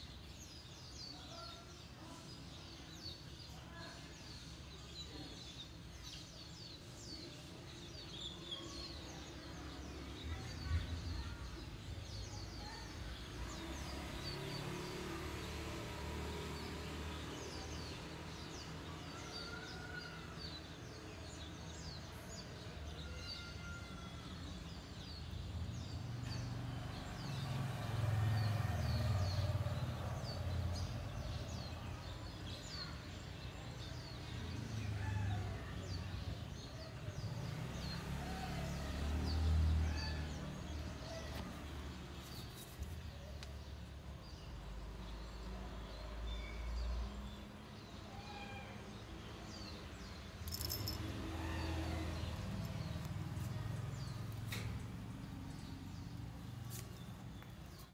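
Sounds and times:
birds chirping: 49.5s - 57.9s.

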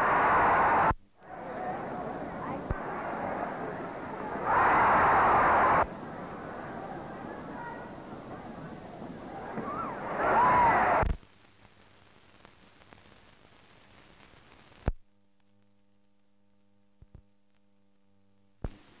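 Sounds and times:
old film sound: 0.0s - 14.0s
soundtrack hiss: 0.0s - 15.0s
low mains hum: 0.0s - 19.0s.

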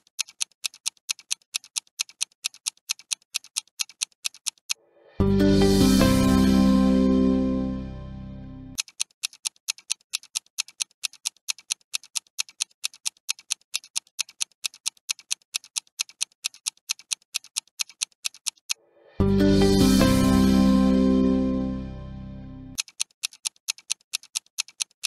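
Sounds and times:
clock ticking: 0.0s - 4.8s, 8.8s - 21.8s, 22.7s - 25.0s
music: 5.1s - 8.8s, 19.1s - 22.8s.

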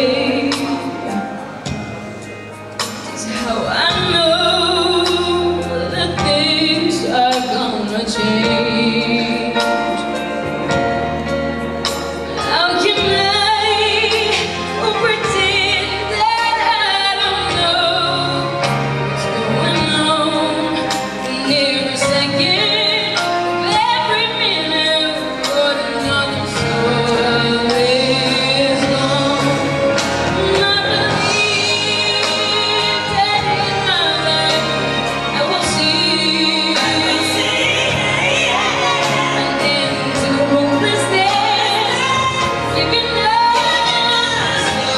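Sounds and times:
instrumental accompaniment: 0.0s - 44.9s
girl singing into microphone: 12.4s - 18.6s, 19.2s - 44.9s.

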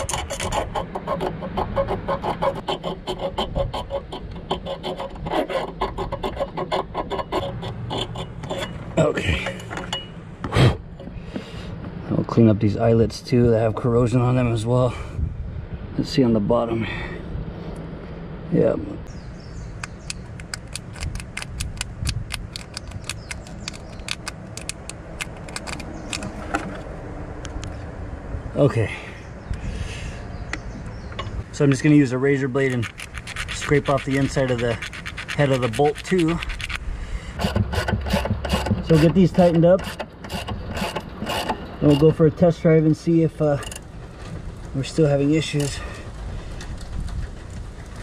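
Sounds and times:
razor blade scraping paint off metal: 0.0s - 8.9s, 32.6s - 36.8s, 37.4s - 42.1s
low steady rumble: 0.0s - 48.0s
ratchet wrench clicking: 32.6s - 36.8s.

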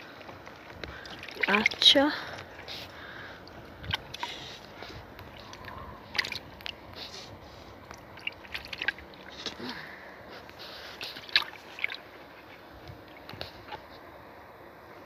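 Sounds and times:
water splashing in a bucket: 0.6s - 7.1s, 7.8s - 9.8s, 10.9s - 13.8s.

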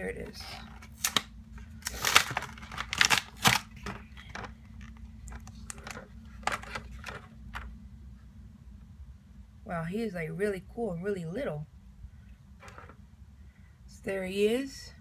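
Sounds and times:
plastic crinkles and clicks: 0.6s - 7.7s
plastic blister pack tearing: 0.8s - 7.2s.

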